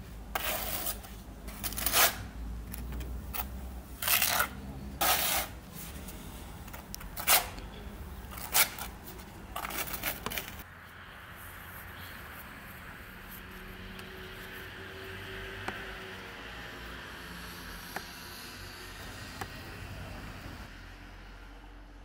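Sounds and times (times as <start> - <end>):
trowel scraping adhesive on wall: 0.3 - 2.2, 4.0 - 5.6.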